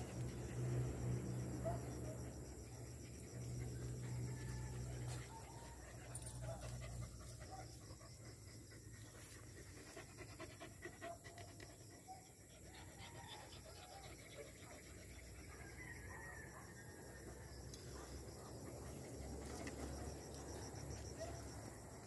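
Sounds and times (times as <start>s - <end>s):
dog panting: 2.8s - 15.3s.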